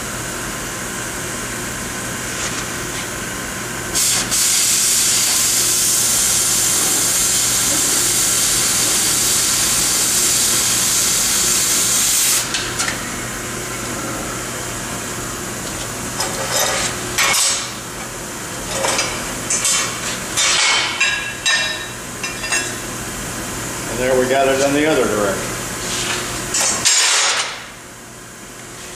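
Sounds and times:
cutting torch hissing: 3.9s - 12.6s.

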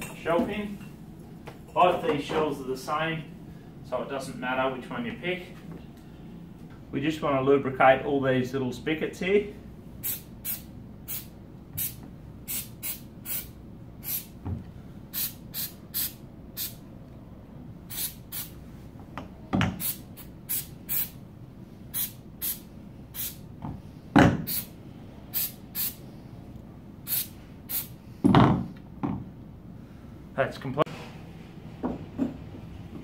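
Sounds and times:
aerosol spray hissing: 10.0s - 14.3s, 15.1s - 16.8s, 17.9s - 18.6s, 19.8s - 21.2s, 21.9s - 22.6s, 23.2s - 23.4s, 24.5s - 24.7s, 25.3s - 26.0s, 27.1s - 28.0s.

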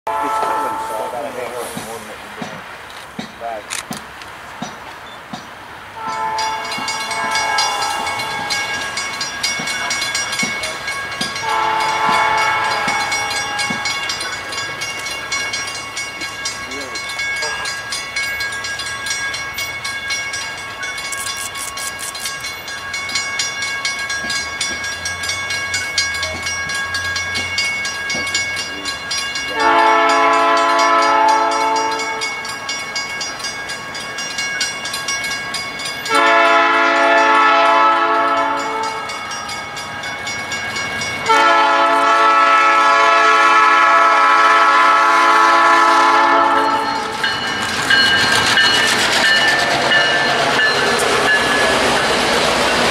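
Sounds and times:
locomotive air horn blasts: 0.1s - 1.6s, 6.0s - 8.8s, 11.4s - 14.1s, 29.5s - 32.3s, 36.1s - 39.2s, 41.3s - 47.0s.

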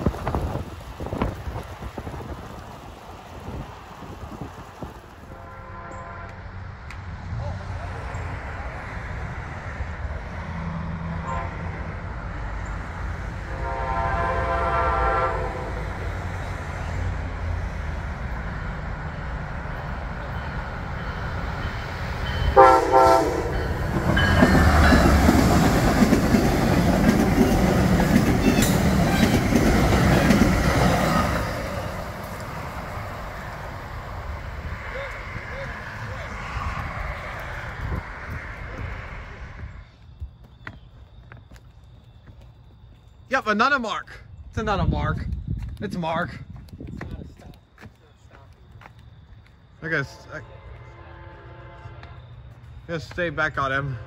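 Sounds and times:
locomotive engine noise: 0.0s - 54.0s
train horn: 5.3s - 6.5s, 11.2s - 12.0s, 13.4s - 15.9s, 22.5s - 24.3s, 50.0s - 52.4s
train wheels clattering: 20.2s - 32.5s.

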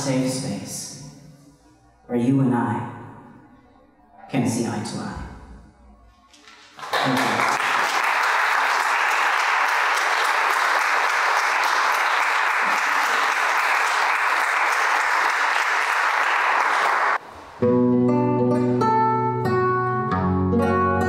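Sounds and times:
audience applauding: 6.4s - 17.2s
acoustic guitar plucked notes: 17.6s - 21.0s.

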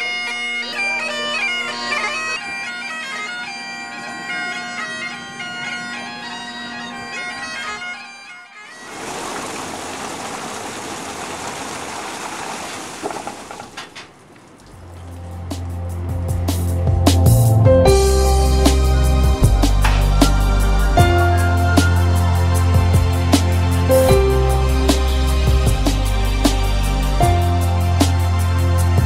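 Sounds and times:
bagpipes playing over a drone: 0.0s - 8.8s, 17.8s - 29.0s
steady rushing hiss: 8.8s - 29.0s.

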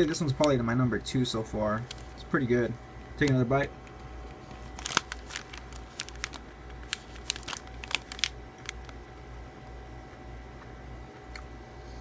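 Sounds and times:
plastic wrapper crinkling: 1.7s - 2.2s, 3.2s - 9.1s.

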